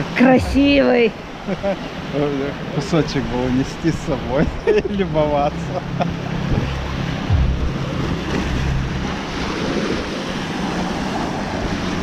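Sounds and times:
small waves washing on beach: 0.0 - 12.0
low steady drone: 0.2 - 1.5, 4.2 - 12.0.

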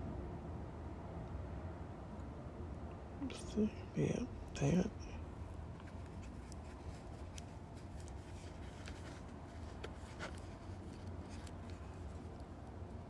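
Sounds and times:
steady low hum: 0.0 - 13.0
soft rubbing: 5.4 - 12.7
light clicks of watch handling: 5.8 - 12.5.

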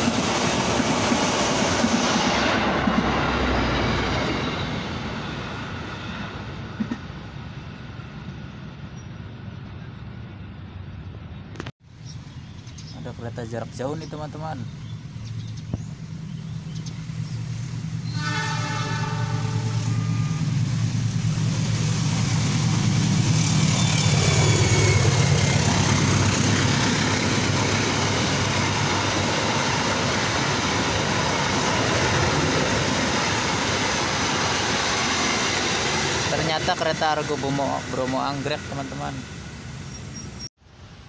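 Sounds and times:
wheels rushing on rail: 0.0 - 12.7, 14.6 - 41.0
diesel locomotive engine drone: 0.0 - 41.0
train horn: 18.0 - 20.6.

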